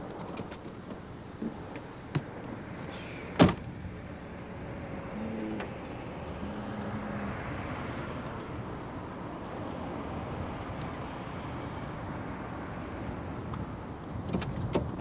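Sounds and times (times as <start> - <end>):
car door slamming: 3.3 - 3.7.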